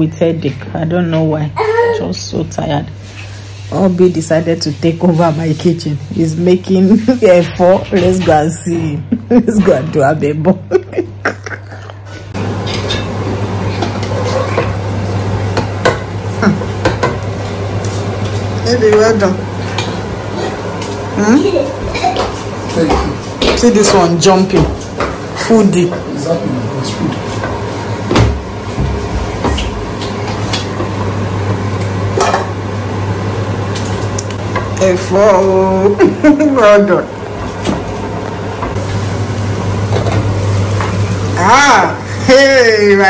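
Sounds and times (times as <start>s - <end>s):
spoon scraping against pots: 12.1s - 14.8s
stew sizzling in a pot: 12.3s - 43.0s.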